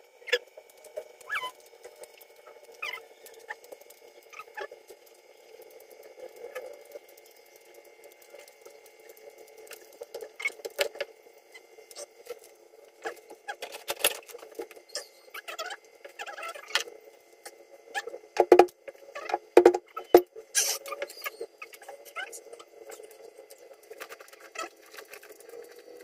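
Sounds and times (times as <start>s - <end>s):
sharp knocks: 18.4s - 18.7s, 19.6s - 20.2s.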